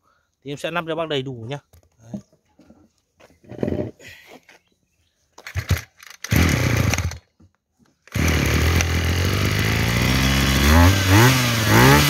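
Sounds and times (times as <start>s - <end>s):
starter cord pulls: 5.4s - 7.2s, 8.1s - 9.1s
brush cutter engine idling: 5.5s - 7.3s, 8.1s - 12.0s.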